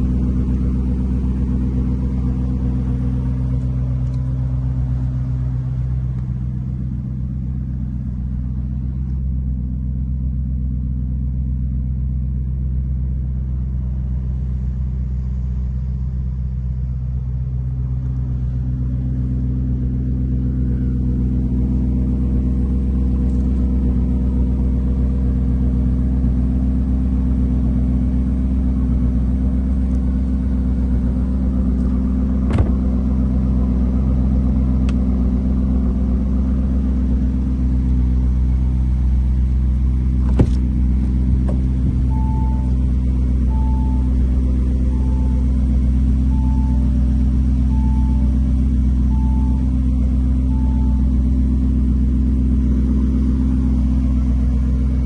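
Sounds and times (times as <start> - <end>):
car engine idling: 0.0 - 55.0
car warning chime beeping: 41.6 - 52.0.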